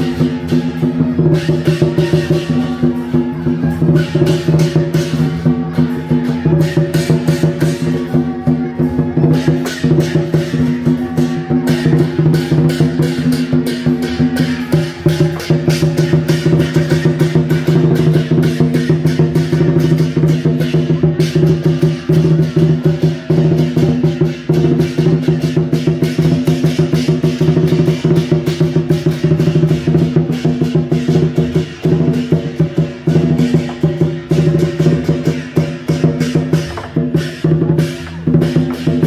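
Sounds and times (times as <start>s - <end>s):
crashing cymbals: 0.0s - 39.0s
drum beaten fast: 0.0s - 39.0s.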